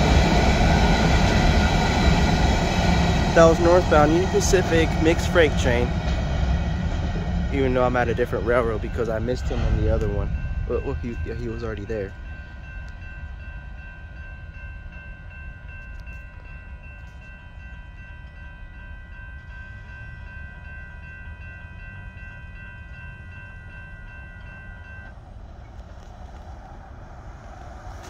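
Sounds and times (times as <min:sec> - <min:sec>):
low rumble: 0:00.0 - 0:13.8
crossing warning bell ringing: 0:00.0 - 0:25.8
car approaching: 0:25.1 - 0:28.0.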